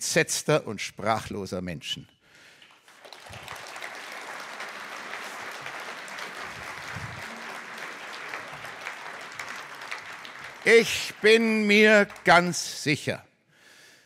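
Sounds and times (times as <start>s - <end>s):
audience applauding: 2.7s - 13.0s.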